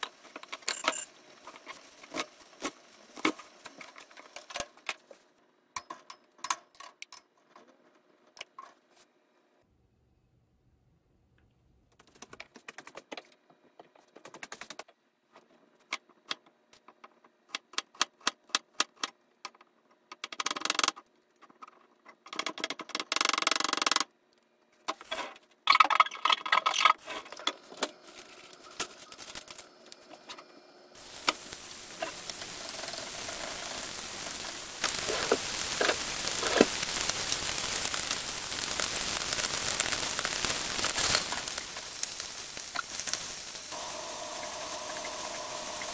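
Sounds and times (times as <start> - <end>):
rustling handling noises: 27.0 - 30.4
bacon sizzling in frying pan: 31.0 - 45.9.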